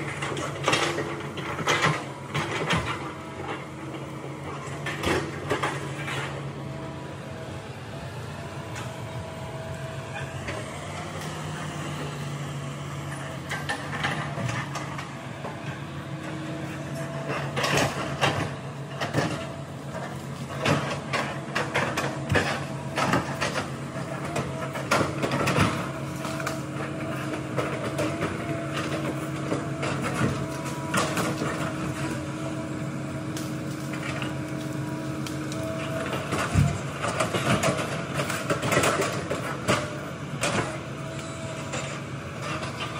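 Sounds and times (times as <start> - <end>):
excavator diesel engine running: 0.0 - 42.9
knocks and cracks among logs: 16.9 - 32.2, 33.3 - 42.9.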